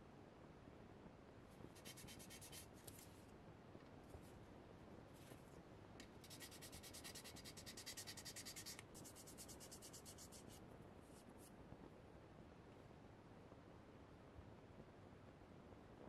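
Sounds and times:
sandpaper rubbing on plastic: 6.3 - 10.6.

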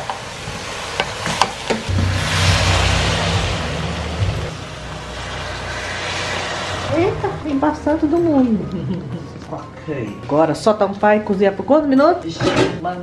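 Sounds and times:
meat hissing and sizzling: 0.0 - 7.0.

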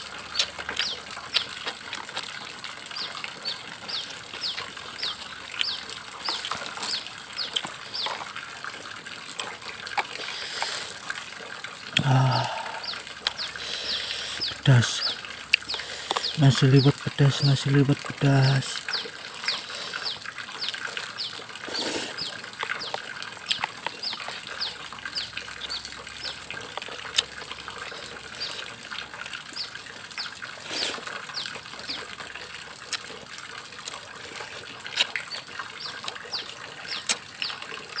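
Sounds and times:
plastic food bag crinkling: 5.9 - 8.4.

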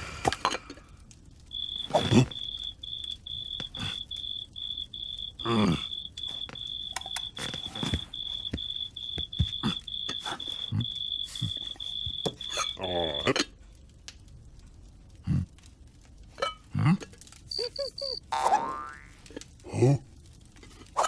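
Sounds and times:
cartoon cricket chirping: 1.5 - 13.3, 17.5 - 19.0.

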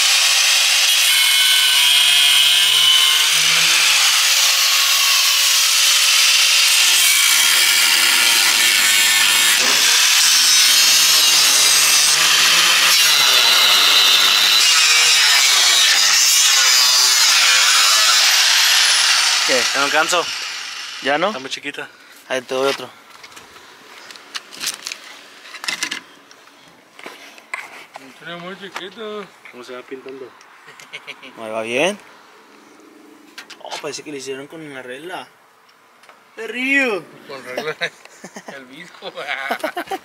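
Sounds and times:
angle grinder cutting metal: 0.0 - 21.6.

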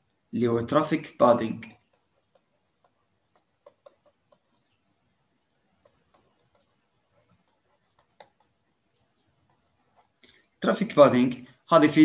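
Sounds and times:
stylus tapping and dragging on tablet: 1.4 - 10.7.

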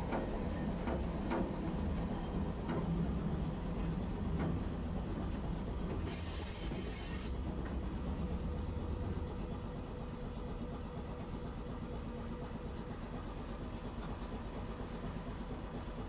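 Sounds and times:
streetcar rumble: 0.0 - 16.0
wheels squealing on rails: 5.9 - 8.2.

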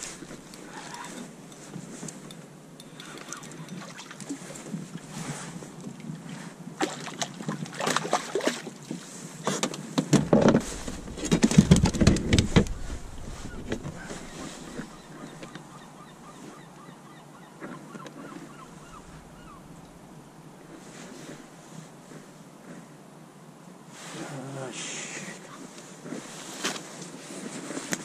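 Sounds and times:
water splashing: 6.8 - 8.9, 10.1 - 15.9
fish thumping in plastic kayak: 9.4 - 15.6.

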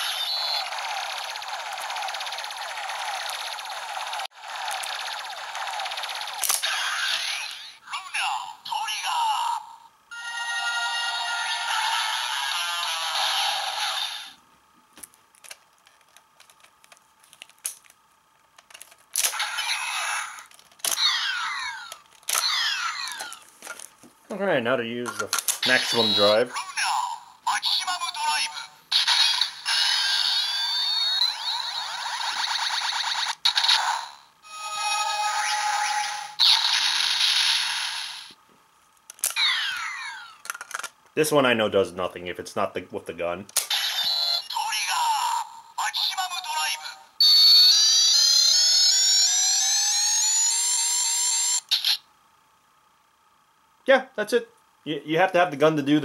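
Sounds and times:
falling electronic sweeps: 0.0 - 7.8
electronic toy sound effect: 0.0 - 14.4, 19.2 - 23.5, 25.6 - 38.4, 39.2 - 40.6, 43.6 - 52.1.

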